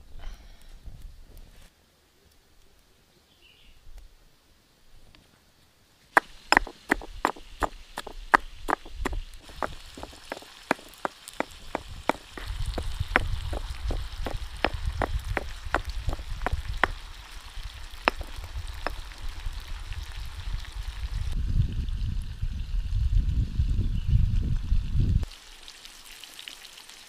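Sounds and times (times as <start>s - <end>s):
stone pestle pounding in mortar: 6.2s - 17.0s, 18.1s - 19.0s.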